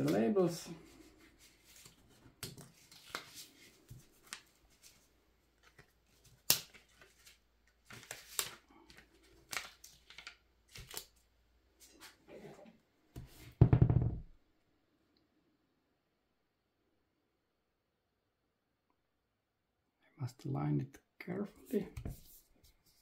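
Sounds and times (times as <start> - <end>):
paper label rustling and clicking: 5.6 - 11.2.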